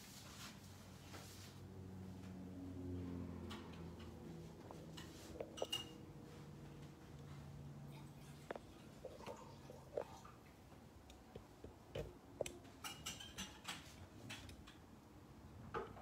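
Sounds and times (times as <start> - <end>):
glass vessels clicking and tapping: 5.0 - 6.0, 12.4 - 14.8.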